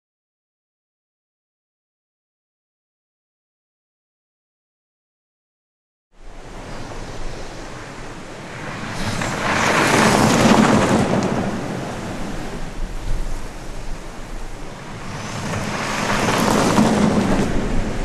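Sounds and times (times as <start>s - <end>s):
tyres rushing on dirt: 8.6s - 12.6s, 14.9s - 18.0s.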